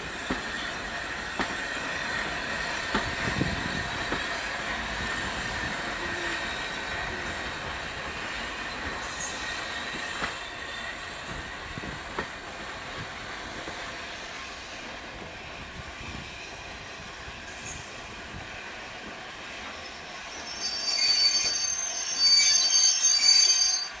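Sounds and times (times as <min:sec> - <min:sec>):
train brake and wheel squeal: 0:00.0 - 0:12.4, 0:16.0 - 0:24.0
train coach rolling on track: 0:00.0 - 0:24.0.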